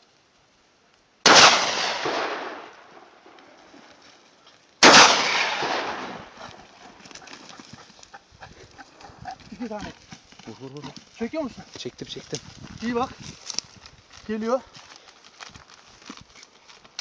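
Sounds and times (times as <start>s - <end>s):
loud gunshots with echo: 1.3s - 2.8s, 4.8s - 6.3s.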